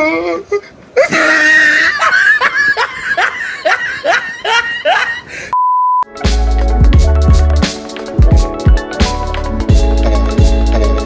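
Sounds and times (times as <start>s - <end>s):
laughter bursts: 1.0s - 5.3s
short steady beep: 5.5s - 6.1s
electronic music with heavy bass: 6.0s - 11.0s.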